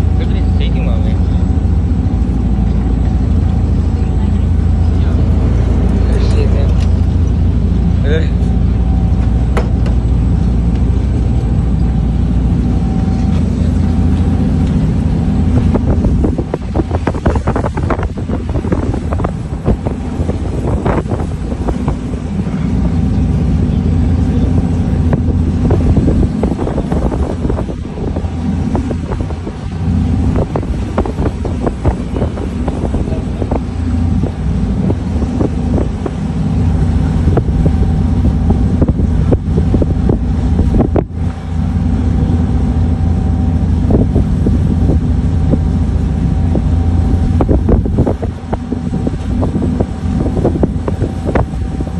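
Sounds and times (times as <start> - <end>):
ferry engines droning: 0.0 - 51.9
wind buffeting microphone: 0.0 - 51.9.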